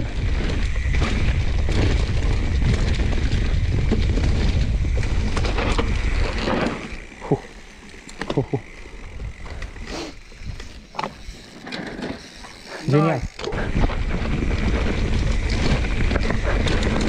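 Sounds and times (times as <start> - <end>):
wind rush on microphone: 0.0 - 7.2, 12.6 - 17.0
bike rattling over ground: 0.0 - 17.0
scattered clicks: 5.0 - 13.9.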